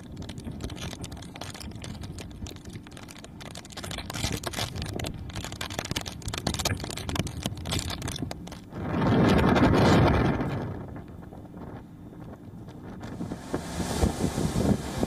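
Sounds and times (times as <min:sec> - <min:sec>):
crackling clicks: 0:00.0 - 0:08.7
wind and rain on microphone: 0:00.0 - 0:15.0.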